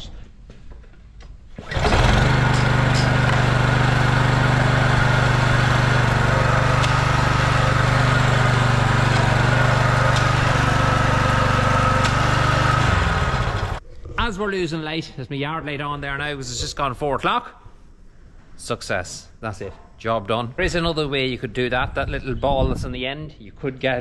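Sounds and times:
small petrol engine running: 0:01.6 - 0:13.8.

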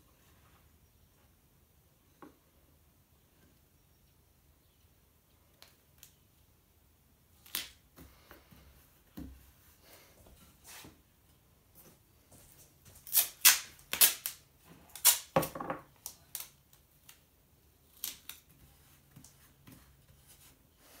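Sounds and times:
tape ripping off roll: 0:13.0 - 0:16.6.

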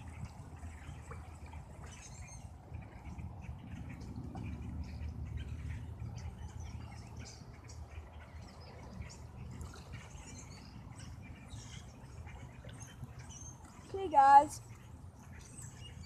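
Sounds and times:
songbirds chirping: 0:00.0 - 0:16.0
steady low rumble: 0:00.0 - 0:16.0.

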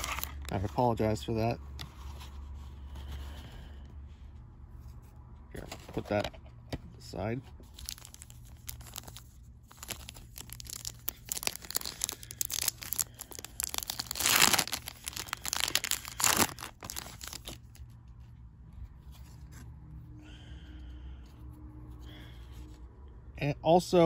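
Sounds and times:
foil wrappers tearing: 0:00.0 - 0:00.6, 0:07.7 - 0:17.8
foil wrappers crinkling: 0:00.0 - 0:00.7, 0:07.7 - 0:17.9.

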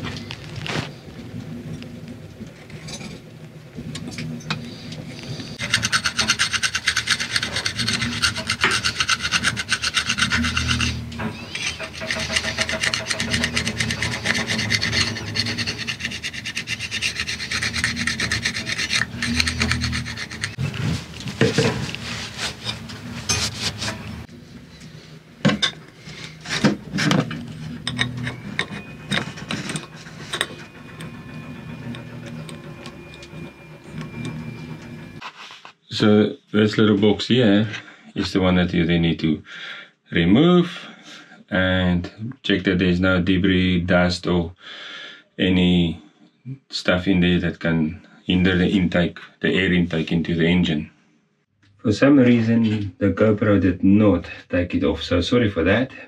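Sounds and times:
hand scraper scraping metal: 0:05.6 - 0:20.8, 0:26.0 - 0:35.3.

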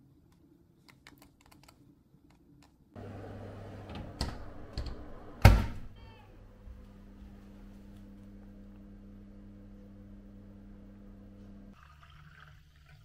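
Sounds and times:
faint cat meow: 0:06.0 - 0:06.4.

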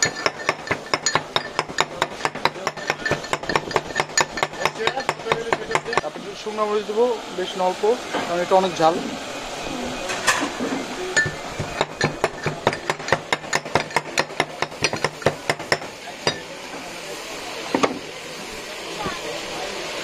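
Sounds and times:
stone pestle knocking in mortar: 0:00.0 - 0:06.1, 0:11.2 - 0:16.4.

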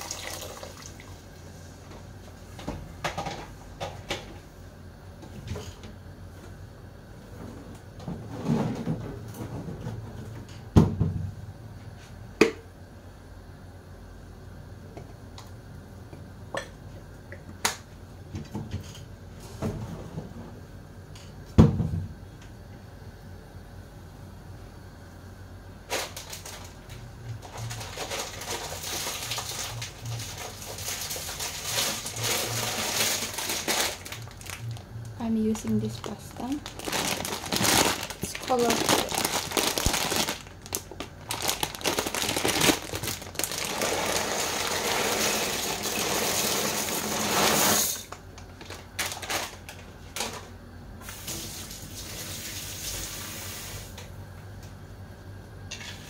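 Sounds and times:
pots bubbling on a stove: 0:00.0 - 0:03.0.

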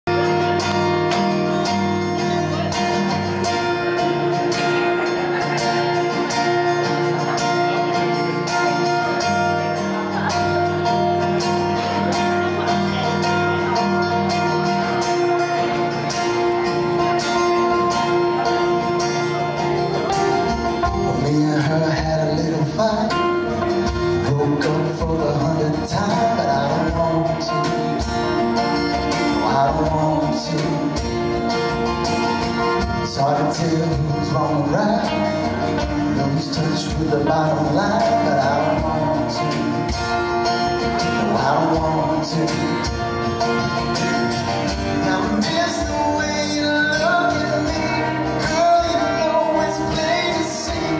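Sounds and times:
acoustic guitars strumming chords: 0:00.0 - 0:50.9.

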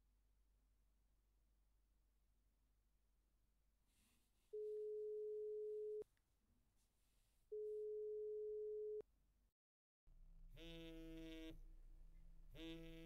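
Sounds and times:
telephone ringing tone beep: 0:04.6 - 0:06.0.

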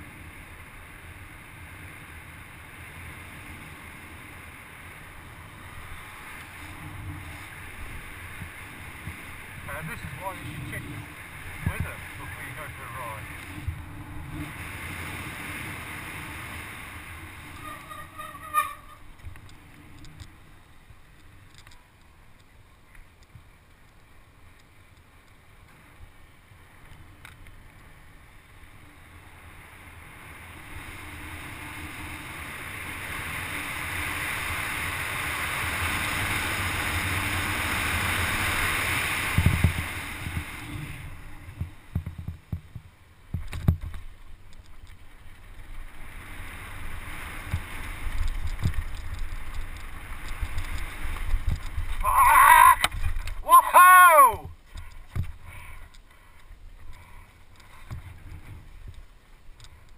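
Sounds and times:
rushing wind: 0:00.0 - 0:21.8, 0:26.0 - 0:59.9
bike tyres on wet road: 0:00.0 - 0:59.9
bike rattling on dirt trail: 0:00.1 - 0:52.1, 0:52.8 - 0:53.5, 0:54.5 - 0:59.9.

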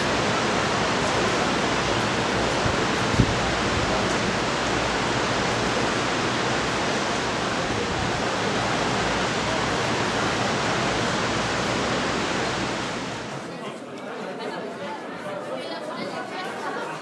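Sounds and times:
electric fans running: 0:00.0 - 0:13.5.

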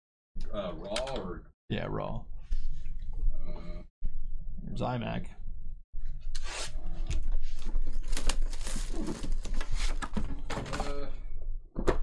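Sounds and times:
plastic wrap tearing and crinkling: 0:07.6 - 0:09.9.

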